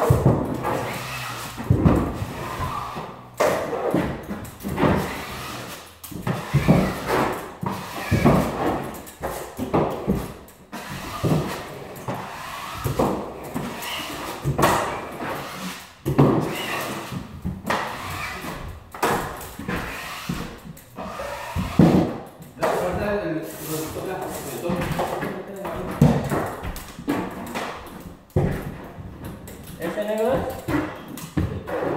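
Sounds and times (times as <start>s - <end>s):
taping knife scraping compound: 0.1s - 9.9s, 10.7s - 18.7s, 19.6s - 24.7s.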